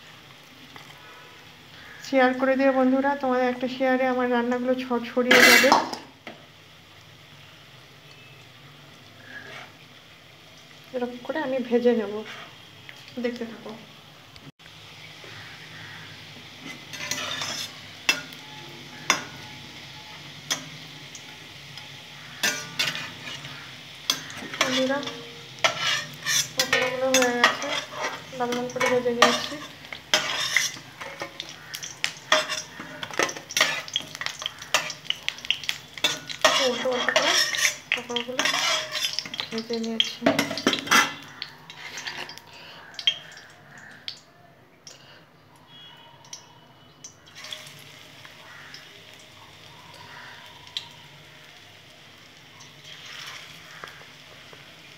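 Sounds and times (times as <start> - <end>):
oil sizzling: 0.0 - 54.9
metal utensil scraping a pan: 5.2 - 6.0, 9.3 - 9.8, 12.1 - 12.6, 16.6 - 18.4, 22.3 - 39.6, 40.2 - 42.4, 47.3 - 47.8.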